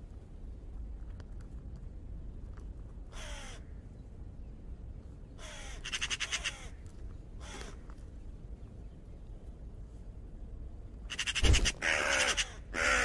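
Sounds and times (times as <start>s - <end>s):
low steady rumble: 0.0s - 13.0s
raven calling: 3.1s - 3.7s, 5.4s - 6.8s, 7.4s - 7.9s, 11.1s - 13.0s.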